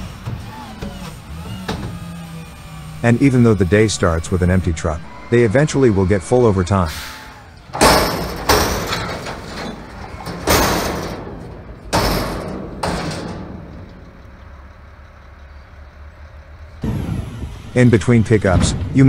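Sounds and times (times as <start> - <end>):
garbage truck engine and hydraulics: 0.0 - 19.0
garbage bin banging on lift arms: 7.4 - 15.3.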